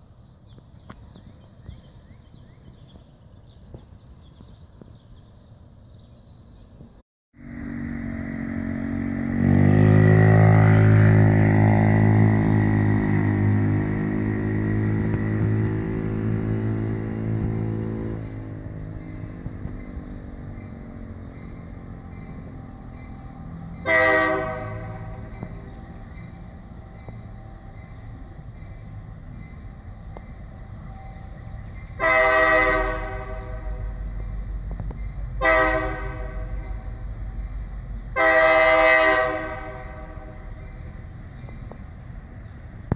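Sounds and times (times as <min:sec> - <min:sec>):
locomotive low rumble: 0:00.0 - 0:42.9
locomotive air horn blasts: 0:23.8 - 0:25.4, 0:32.0 - 0:34.1, 0:35.4 - 0:37.0, 0:38.1 - 0:40.5.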